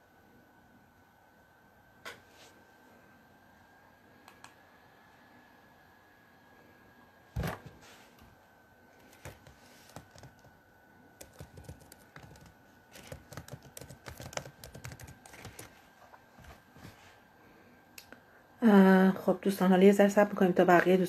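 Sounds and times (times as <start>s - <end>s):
fingertips tapping on phone: 9.2s - 10.5s, 11.2s - 15.7s.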